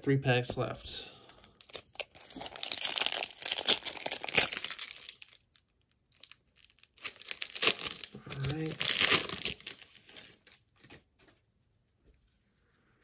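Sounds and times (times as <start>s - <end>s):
foil wrapper crinkling and tearing: 1.4s - 11.0s.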